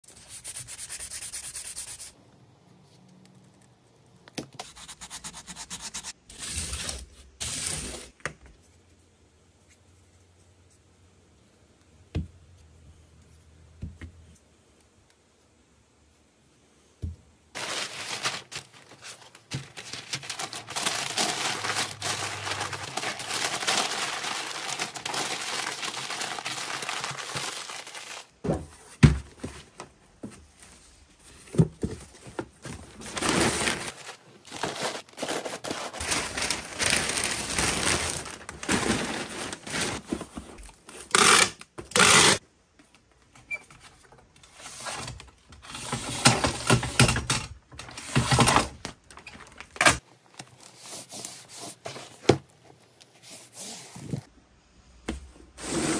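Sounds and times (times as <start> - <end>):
packing paper crumpling: 17.6 - 28.4, 32.6 - 40.7.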